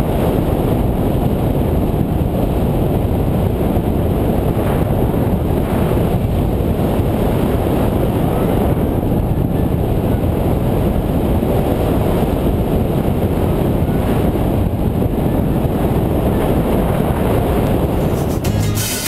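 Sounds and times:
wind buffeting microphone: 0:00.0 - 0:18.5
guitar music: 0:17.9 - 0:19.0.

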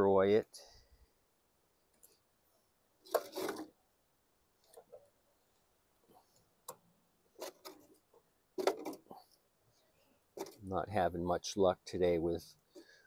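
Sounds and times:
metal tool scraping: 0:03.1 - 0:03.7.

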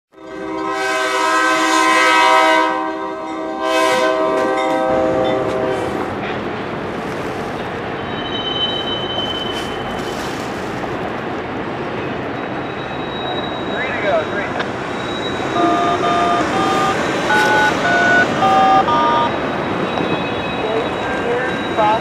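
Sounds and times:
low rumble of train: 0:00.2 - 0:22.0
locomotive air horn blasts: 0:00.3 - 0:06.1, 0:15.6 - 0:19.3.

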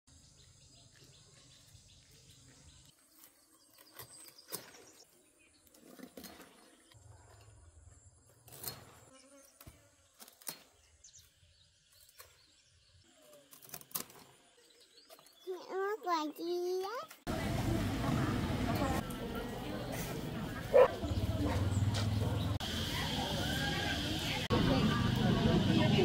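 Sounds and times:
birds chirping: 0:09.1 - 0:17.2, 0:18.2 - 0:26.0.

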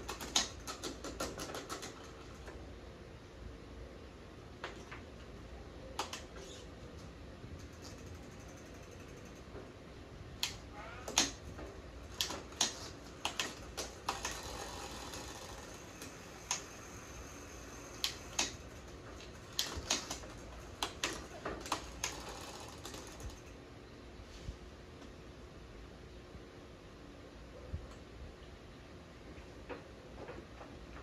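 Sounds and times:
sharp clicks: 0:00.0 - 0:02.5, 0:06.0 - 0:09.3, 0:10.4 - 0:16.8, 0:17.9 - 0:23.6.

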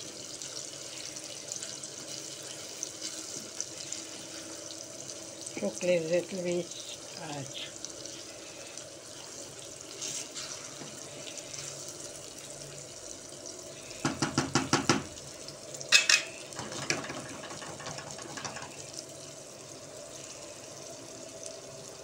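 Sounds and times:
sauce bubbling hiss: 0:00.0 - 0:22.0
spoon knocking against pan: 0:14.0 - 0:15.1, 0:15.9 - 0:18.8
spoon tapping pan: 0:14.0 - 0:15.1, 0:15.9 - 0:18.8.

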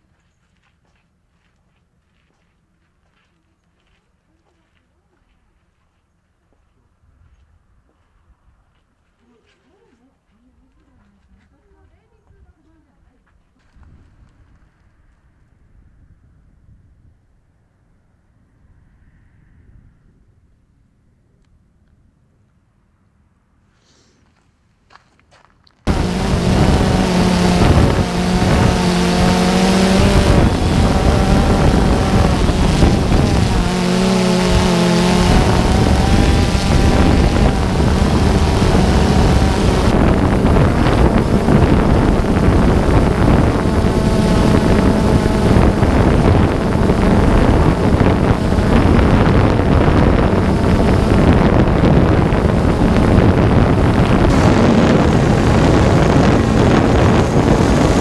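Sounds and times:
wind noise: 0:13.7 - 0:17.4, 0:25.9 - 0:58.0
drone propellers whirring: 0:25.9 - 0:58.0.

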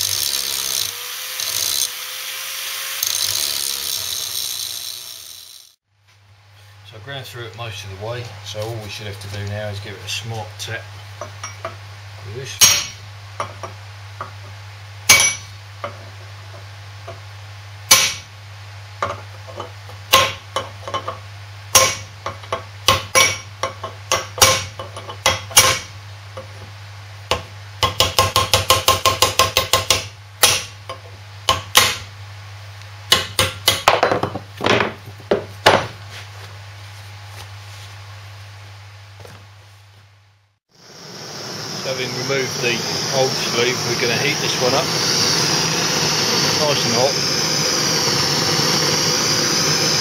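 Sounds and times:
steady low hum: 0:05.9 - 0:50.0
hammer striking chisel on metal: 0:12.6 - 0:13.8, 0:15.1 - 0:15.5, 0:17.9 - 0:18.2, 0:20.1 - 0:25.9, 0:27.3 - 0:32.0, 0:33.1 - 0:34.4.

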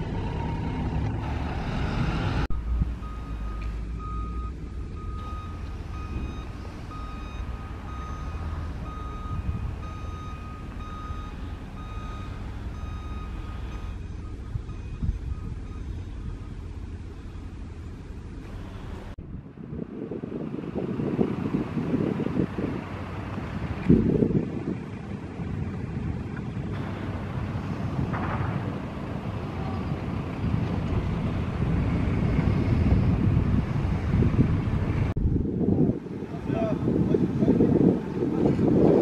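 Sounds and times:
city buses engine rumble: 0:00.0 - 0:39.0
reversing alarm beeping: 0:01.9 - 0:16.6.

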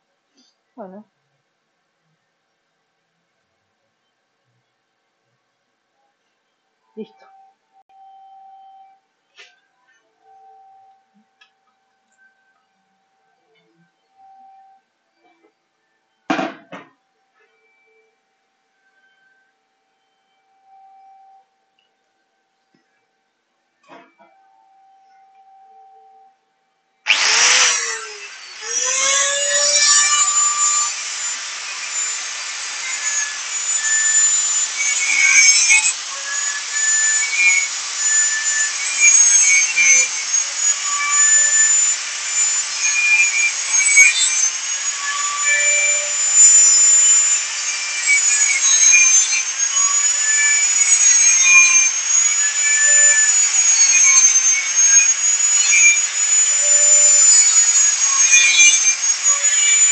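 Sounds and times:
angle grinder cutting wire mesh: 0:27.1 - 0:59.9.

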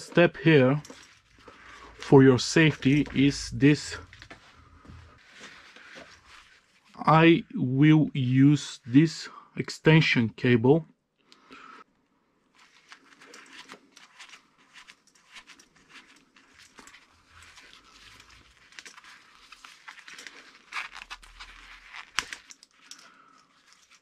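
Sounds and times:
gloved hands rustling wires: 0:00.0 - 0:07.0, 0:12.5 - 0:24.0.

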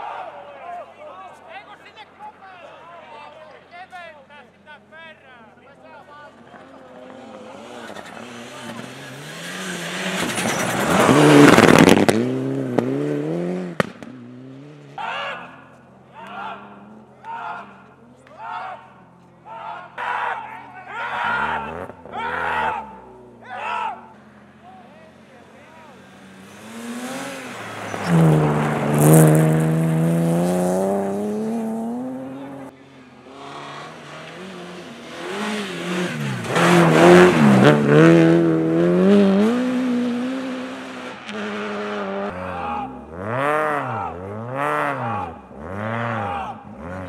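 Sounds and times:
rally car engine revving: 0:06.4 - 0:15.0, 0:20.9 - 0:47.0
spectators calling: 0:15.0 - 0:29.8.

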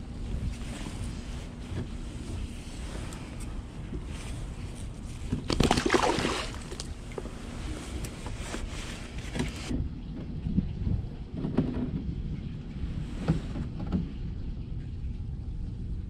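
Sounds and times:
wind rumble on microphone: 0:00.0 - 0:16.0
water splashing: 0:05.4 - 0:07.6.

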